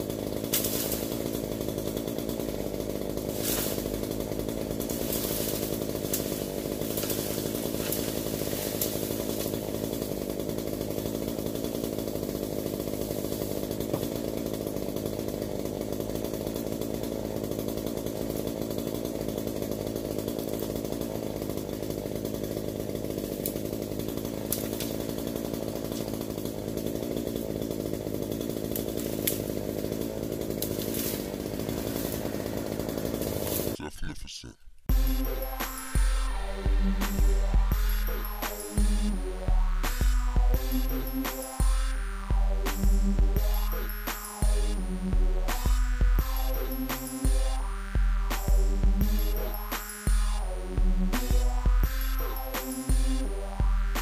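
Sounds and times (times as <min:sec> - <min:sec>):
branches snapping: 0:00.0 - 0:33.8, 0:52.4 - 0:52.9
chainsaw running: 0:00.0 - 0:33.9, 0:34.8 - 0:54.0.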